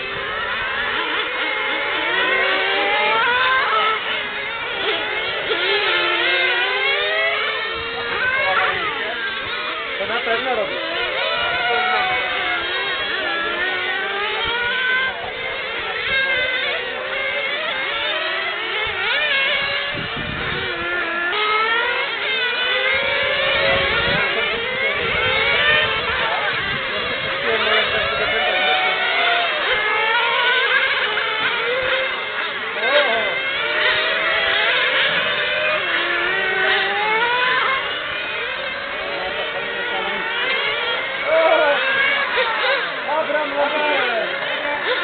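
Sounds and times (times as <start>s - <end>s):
rc car motors whining: 0.0s - 45.0s.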